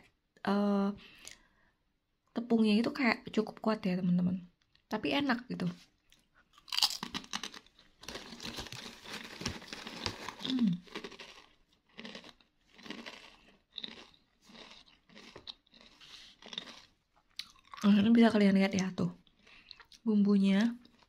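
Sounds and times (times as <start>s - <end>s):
plastic chip bag crinkling: 6.7s - 16.9s.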